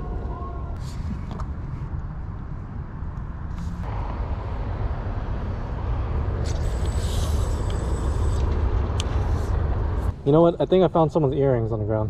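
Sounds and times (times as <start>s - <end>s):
low rumble of road traffic: 0.0s - 12.0s
bright hiss: 6.5s - 8.4s.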